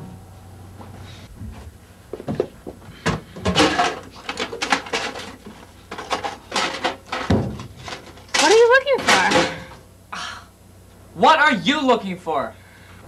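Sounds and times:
contents rattling and rustling: 3.4s - 9.8s.

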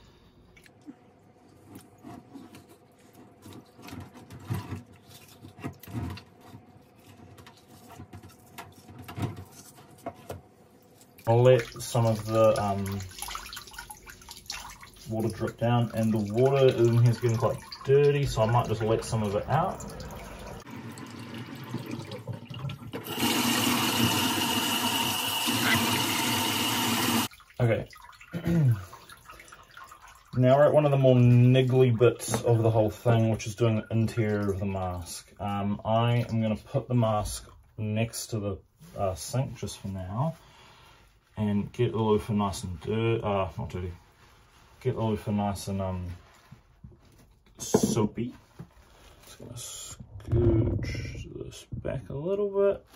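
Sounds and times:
water sloshing: 0.6s - 23.0s, 27.2s - 34.8s
tap water running into steel sink: 11.3s - 28.3s.

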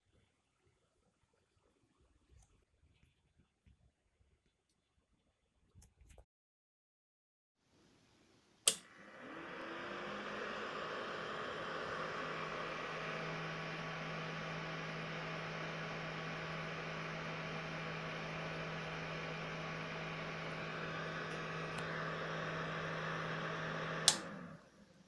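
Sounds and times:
small fan whirring: 8.6s - 25.0s.

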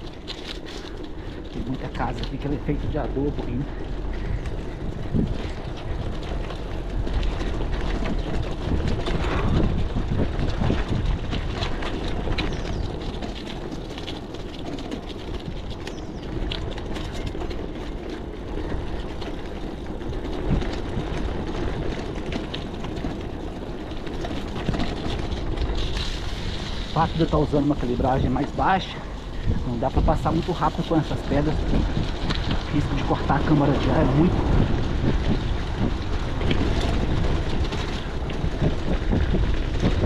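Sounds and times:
bike rattling: 0.0s - 40.0s
tyres rumbling on stony road: 0.0s - 40.0s.

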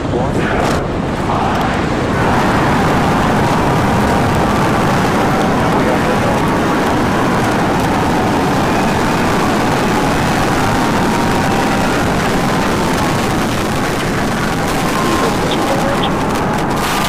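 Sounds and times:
rocket engines rumbling: 0.0s - 17.0s.

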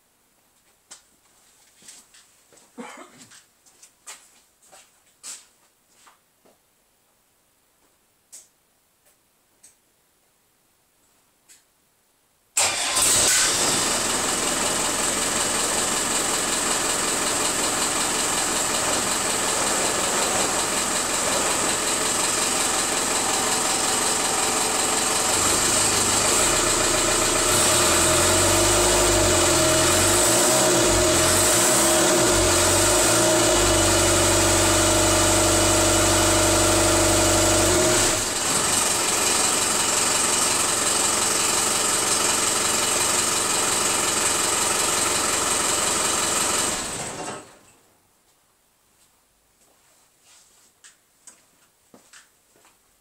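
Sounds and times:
diesel engine starting and running: 12.6s - 47.6s.

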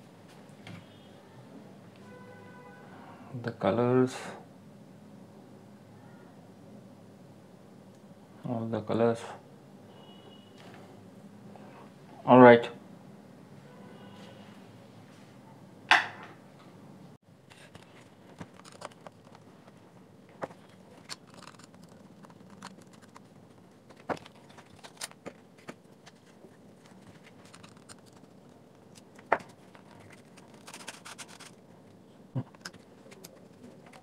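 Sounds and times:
plastic scraping: 17.5s - 31.7s.

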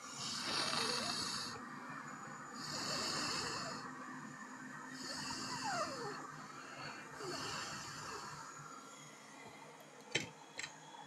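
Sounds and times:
faint steady hum: 0.0s - 11.0s
person breathing: 5.2s - 9.7s.

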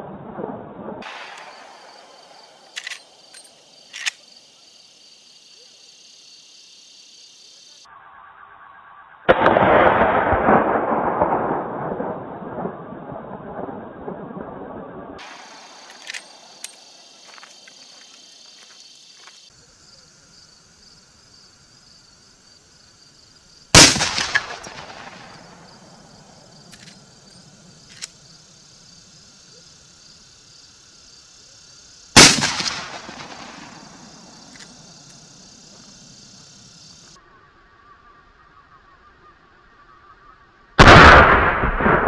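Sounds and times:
rifle shots with echo: 23.8s - 27.0s, 32.2s - 35.2s, 40.8s - 42.0s.

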